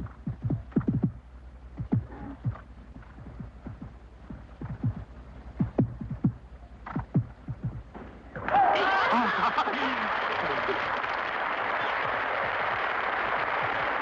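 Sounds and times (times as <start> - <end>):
steady low hum: 0.0 - 8.5
crowd applauding and cheering: 8.4 - 14.0.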